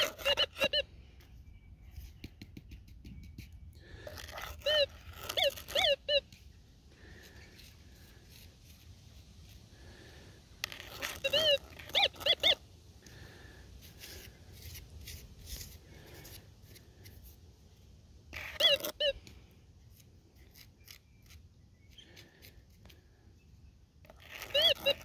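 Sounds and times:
metal detector tones: 0:00.0 - 0:00.8, 0:04.4 - 0:06.2, 0:10.7 - 0:12.6, 0:18.4 - 0:19.2
soil scraping: 0:00.0 - 0:01.3, 0:03.2 - 0:17.4, 0:18.3 - 0:23.2, 0:24.0 - 0:25.0.

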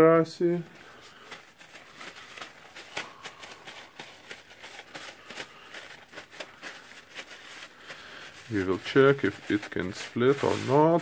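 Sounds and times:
paper towel rustling on metal gears: 0:00.7 - 0:11.0.

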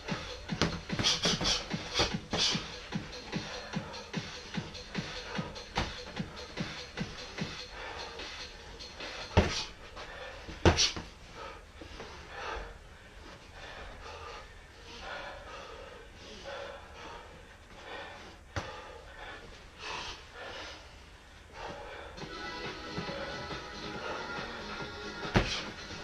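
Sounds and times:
heavy breathing: 0:00.0 - 0:26.0
gloved punches smacking: 0:00.1 - 0:02.7, 0:09.4 - 0:09.7, 0:25.2 - 0:25.8.

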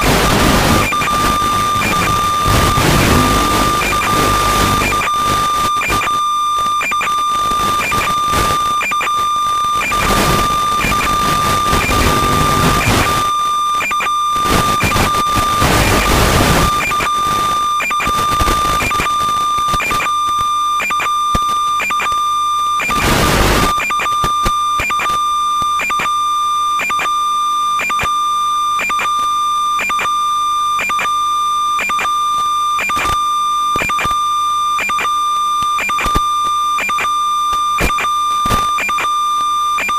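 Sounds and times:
bursts of static hiss: 0:00.0 - 0:06.1, 0:09.7 - 0:13.3, 0:14.4 - 0:20.0, 0:22.9 - 0:24.2
high-pitched whine with clicks: 0:00.0 - 0:39.9.

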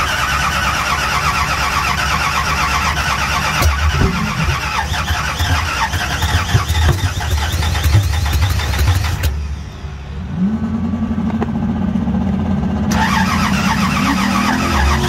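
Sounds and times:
starter motor cranking engine: 0:00.0 - 0:09.4, 0:12.9 - 0:15.0
engine coughing: 0:02.8 - 0:08.0.

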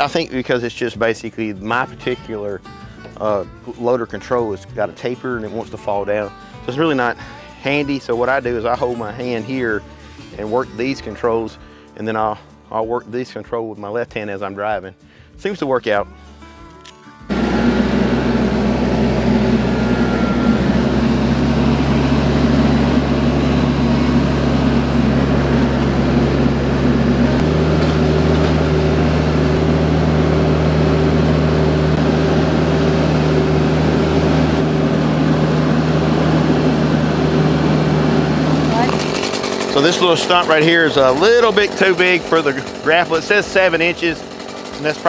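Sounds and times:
tractor diesel engine running: 0:17.3 - 0:45.0.

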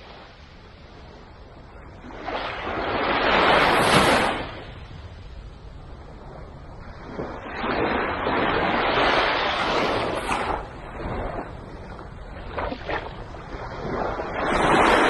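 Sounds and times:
waves washing onto beach: 0:00.0 - 0:15.0
low steady rumble: 0:04.4 - 0:07.5.

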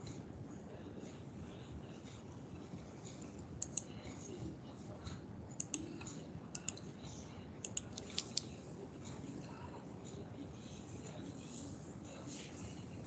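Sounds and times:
low steady hum: 0:00.0 - 0:13.0
computer mouse clicks: 0:03.2 - 0:03.9, 0:05.6 - 0:05.9, 0:06.5 - 0:06.8, 0:07.6 - 0:08.5.

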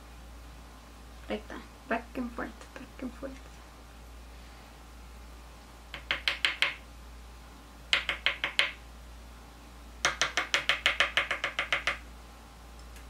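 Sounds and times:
rapid sharp taps: 0:05.9 - 0:06.8, 0:07.9 - 0:08.8, 0:10.0 - 0:12.0.

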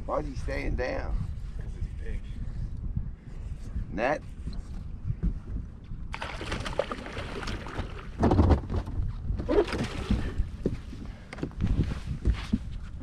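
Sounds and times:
wind rumble on microphone: 0:00.0 - 0:13.0
water splashing at boat side: 0:06.1 - 0:08.6, 0:09.5 - 0:10.5.

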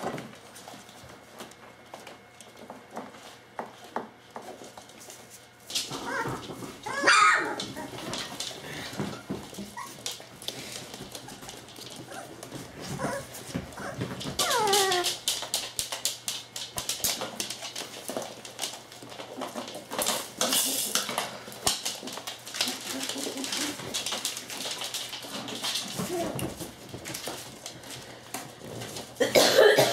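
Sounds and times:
paws scuffling on wooden floor: 0:00.0 - 0:29.6
puppies whimpering and yelping: 0:05.9 - 0:08.2, 0:09.0 - 0:10.2, 0:11.2 - 0:15.2.

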